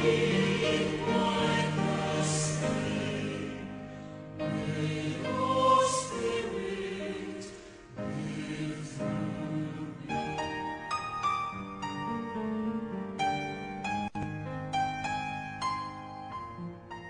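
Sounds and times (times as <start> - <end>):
choir singing slow held chords: 0.0 - 10.9.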